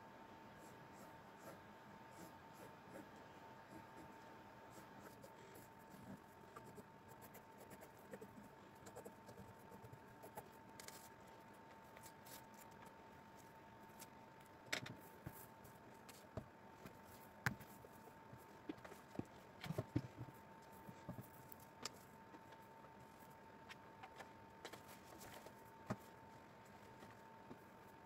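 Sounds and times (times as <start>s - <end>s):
pencil scratching on fabric: 0.6s - 14.1s.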